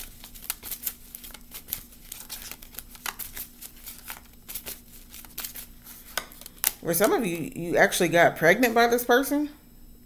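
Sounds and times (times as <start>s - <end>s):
cards being shuffled: 0.0s - 7.4s.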